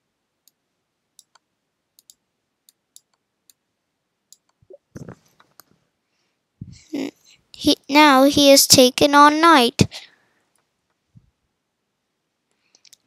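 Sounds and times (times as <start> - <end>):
computer mouse clicks: 1.2 - 3.6, 4.3 - 5.7, 12.7 - 13.0.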